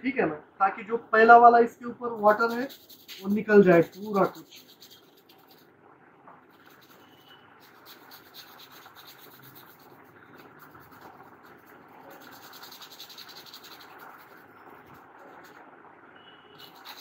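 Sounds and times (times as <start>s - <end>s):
brush scrubbing circuit board: 2.0s - 5.7s, 6.4s - 15.6s, 16.5s - 17.0s.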